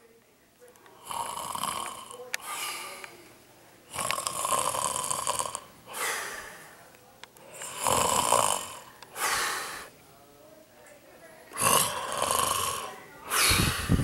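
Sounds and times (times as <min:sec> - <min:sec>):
man snoring: 0:01.0 - 0:02.6, 0:03.9 - 0:06.1, 0:07.5 - 0:09.9, 0:11.6 - 0:14.0.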